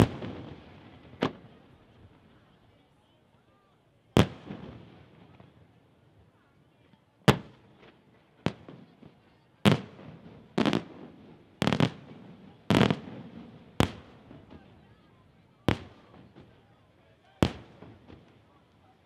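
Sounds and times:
firework crackle: 0:00.0 - 0:02.3, 0:09.7 - 0:14.9.

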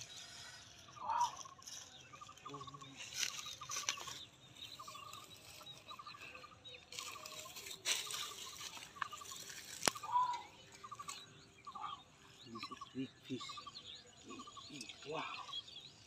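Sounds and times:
sharp rustles and slaps: 0:06.9 - 0:10.3.

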